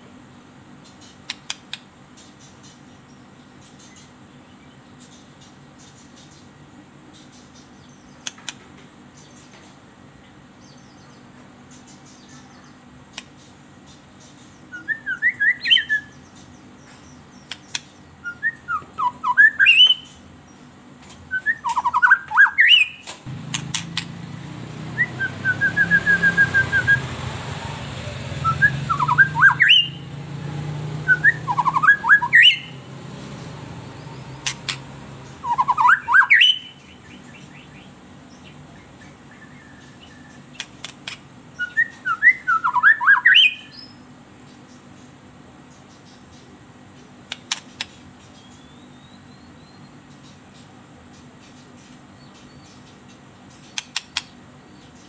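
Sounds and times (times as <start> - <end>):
songbird singing: 0.0 - 55.0
low rumbling noise: 23.2 - 35.8.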